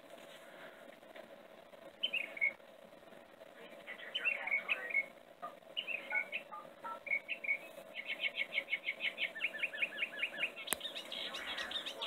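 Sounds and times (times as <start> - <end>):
songbird chirping: 1.9 - 2.7, 3.6 - 12.0.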